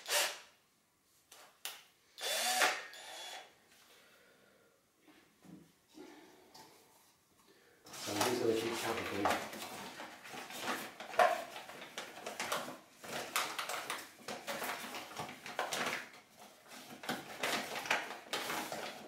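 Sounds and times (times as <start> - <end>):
plastic bag crinkling: 8.0 - 19.0.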